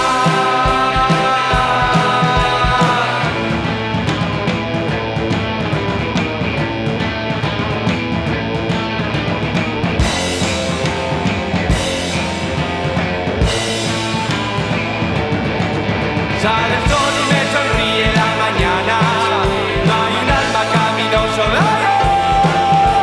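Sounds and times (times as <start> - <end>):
person singing: 0.0 - 4.0, 16.3 - 23.0
rock band playing: 0.0 - 23.0
steady drum beat: 0.0 - 23.0.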